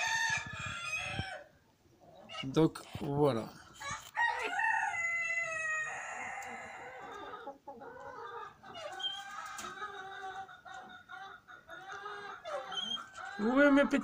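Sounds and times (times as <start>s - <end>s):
rooster crowing: 0.0s - 1.5s, 3.8s - 7.2s
chicken clucking: 0.0s - 3.1s, 3.8s - 14.0s.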